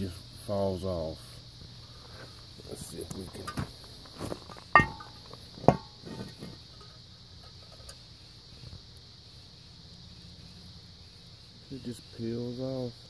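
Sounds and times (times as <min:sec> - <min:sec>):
faint handling ticks: 0:00.0 - 0:09.2
insects chirring: 0:00.0 - 0:13.0
metal part clanking: 0:04.7 - 0:08.0.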